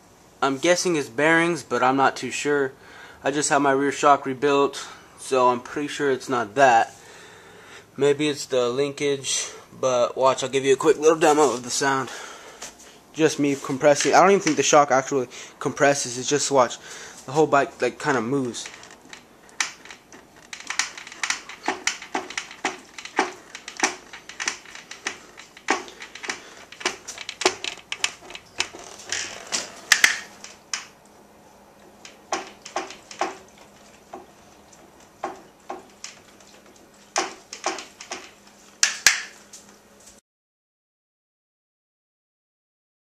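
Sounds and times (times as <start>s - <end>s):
motorcycle suspension clicking: 18.5s - 30.9s, 32.0s - 34.3s.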